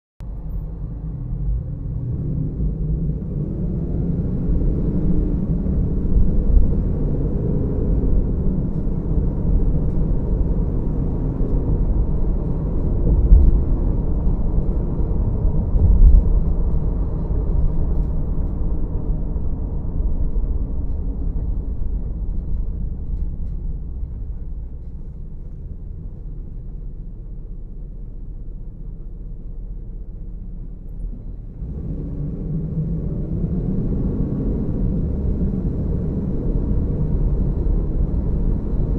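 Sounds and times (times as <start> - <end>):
car road and engine rumble: 0.2 - 38.9.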